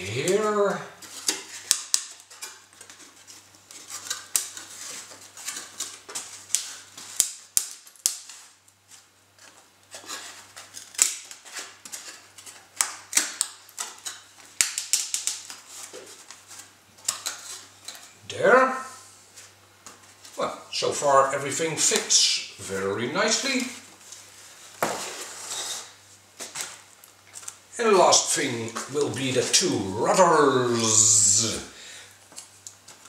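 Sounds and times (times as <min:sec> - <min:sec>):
foam parts clicking and tapping: 0:00.2 - 0:18.1
light scraping of foam: 0:24.2 - 0:26.0.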